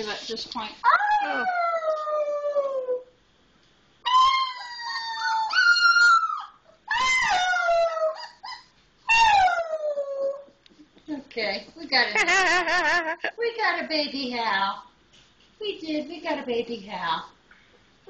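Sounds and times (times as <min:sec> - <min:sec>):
wolf pup howling: 0:00.8 - 0:03.1, 0:04.0 - 0:10.5.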